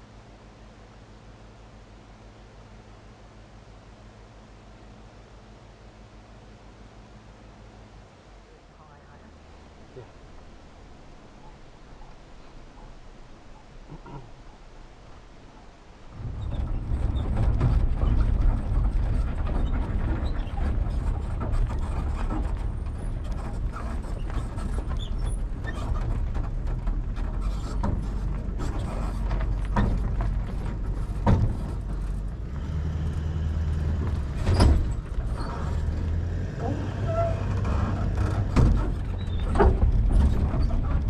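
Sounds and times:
vehicle driving on gravel: 0:08.9 - 0:41.0.

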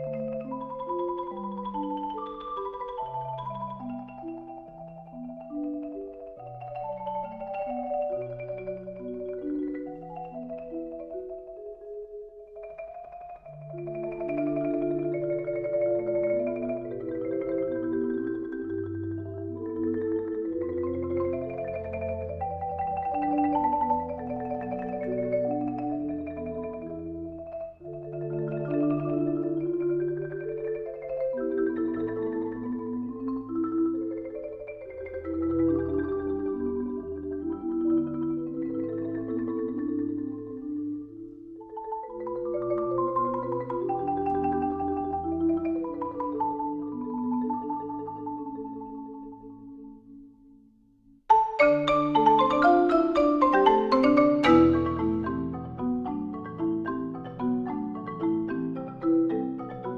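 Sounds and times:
instrumental background music: 0:51.4 - 0:59.9.

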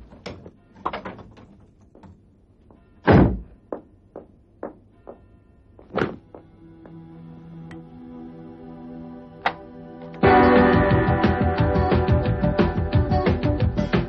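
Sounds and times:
heavy wooden door thunk: 0:03.1 - 0:03.5.

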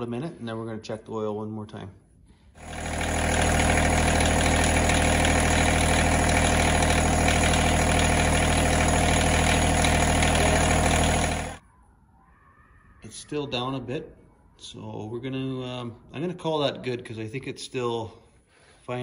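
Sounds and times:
tractor diesel engine idling: 0:02.6 - 0:11.6.

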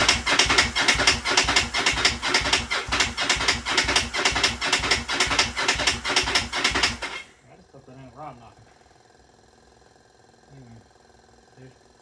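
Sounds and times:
starter cranking engine: 0:00.0 - 0:12.0.

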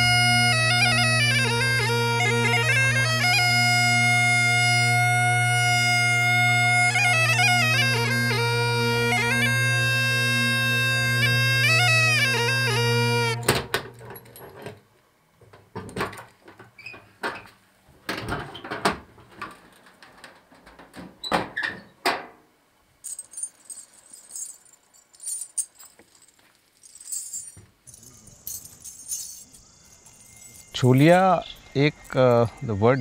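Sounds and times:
metal ankle bells jingling: 0:23.0 - 0:32.7.

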